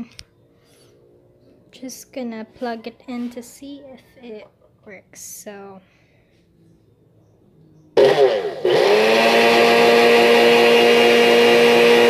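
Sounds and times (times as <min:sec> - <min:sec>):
blender motor running: 0:08.0 - 0:12.0.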